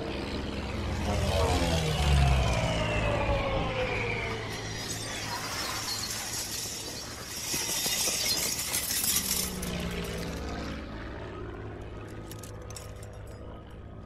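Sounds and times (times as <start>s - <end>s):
glassy tinkling shimmer: 4.3s - 10.2s.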